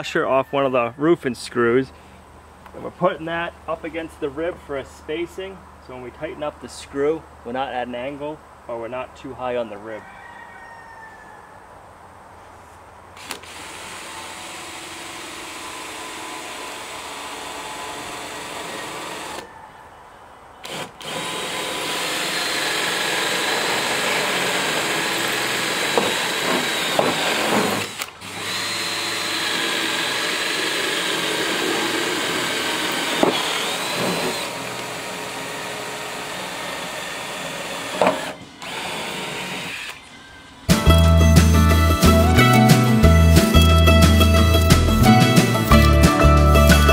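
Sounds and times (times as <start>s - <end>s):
power drill whining on steel: 13.2s - 19.5s, 20.6s - 41.5s.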